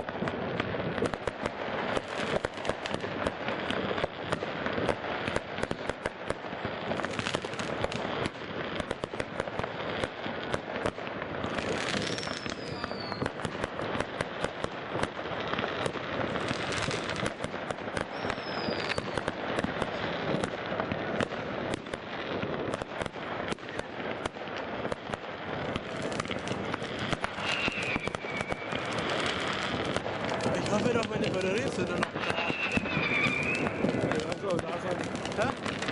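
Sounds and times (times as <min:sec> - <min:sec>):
fireworks crackling and banging: 0:00.0 - 0:35.9
falling firework whistle: 0:11.6 - 0:13.5, 0:17.9 - 0:20.3, 0:26.1 - 0:34.3.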